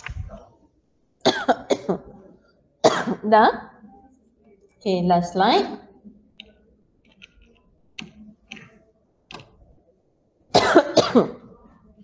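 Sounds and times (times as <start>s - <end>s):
woman coughing: 1.2s - 2.1s, 2.8s - 3.3s, 10.6s - 11.5s.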